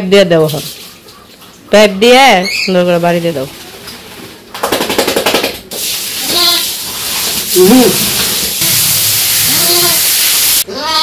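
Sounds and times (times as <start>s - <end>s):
water splashing: 0.3s - 1.8s, 5.6s - 10.6s
garden hose spraying: 5.7s - 10.7s
lamb crying: 10.7s - 11.0s.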